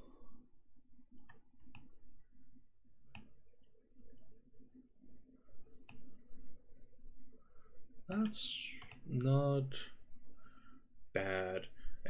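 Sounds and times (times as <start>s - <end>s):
faint low hum: 0.0s - 12.0s
computer mouse clicks: 1.2s - 1.9s, 3.1s - 3.4s.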